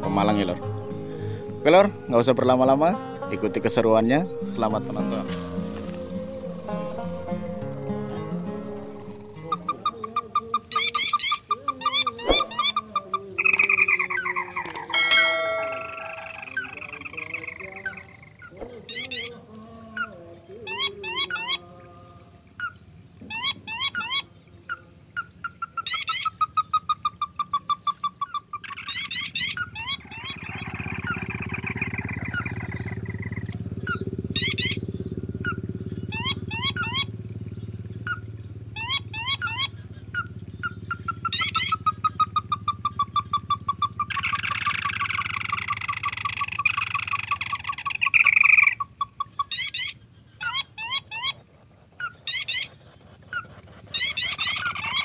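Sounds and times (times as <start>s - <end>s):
low rumbling noise: 0.0s - 10.2s
falling trill: 0.0s - 20.2s
crake calls: 0.0s - 55.0s.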